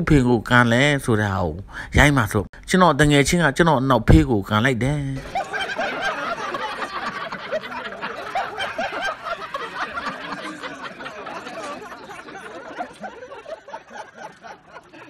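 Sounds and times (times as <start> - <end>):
crowd laughing: 5.2 - 15.0.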